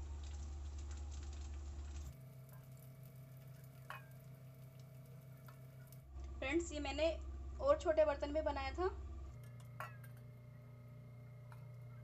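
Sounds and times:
syrup pattering: 0.0s - 6.1s
steady low hum: 0.0s - 12.0s.

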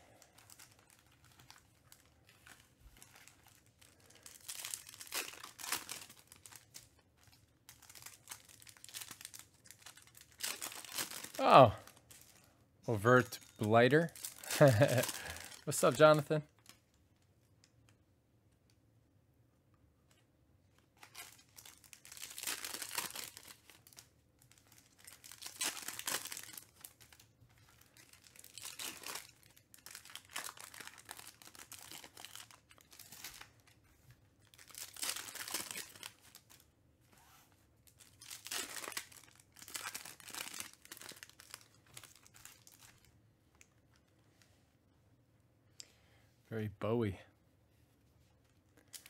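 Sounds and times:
foil wrappers tearing and crinkling: 0.1s - 12.4s, 13.4s - 16.8s, 21.0s - 33.8s, 34.4s - 36.6s, 37.9s - 43.1s.

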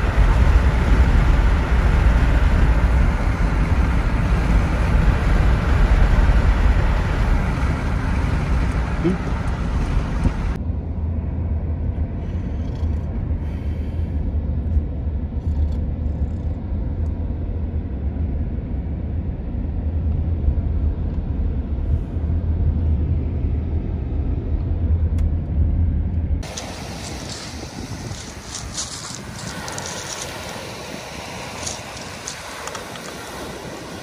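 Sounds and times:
car road and engine rumble: 0.0s - 34.0s
bright hiss: 26.4s - 34.0s.

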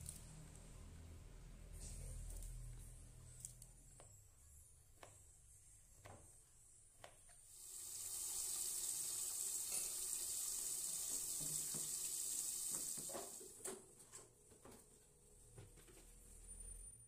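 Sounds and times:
stir-fry sizzling in a wok: 7.5s - 13.4s.

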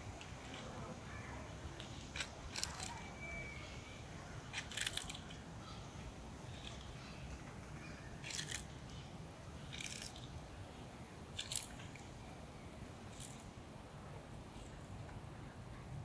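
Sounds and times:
tortoise crunching leaves: 0.0s - 7.2s, 8.1s - 12.2s, 13.0s - 13.6s.

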